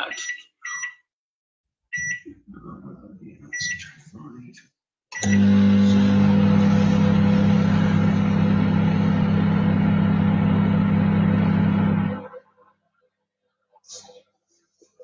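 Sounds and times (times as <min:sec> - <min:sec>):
microwave oven humming: 0:05.2 - 0:12.4.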